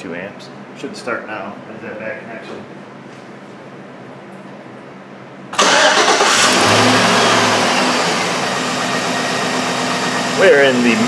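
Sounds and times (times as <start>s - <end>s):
truck engine starting and running: 5.6s - 11.0s.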